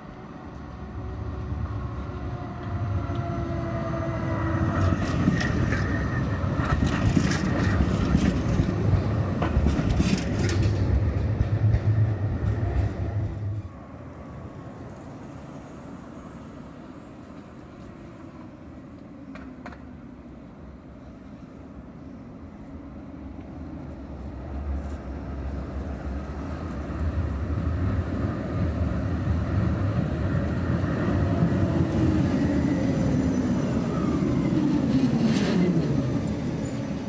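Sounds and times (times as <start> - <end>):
street hum: 0.0 - 37.0
wheels clicking over rail joints: 4.8 - 13.4
tram motor whine: 22.2 - 37.0.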